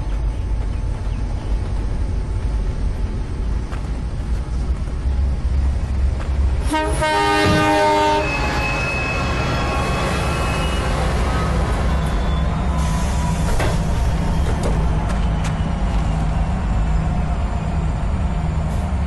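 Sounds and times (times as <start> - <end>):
railcar rumbling past: 0.0 - 19.0
train horn: 6.6 - 12.4.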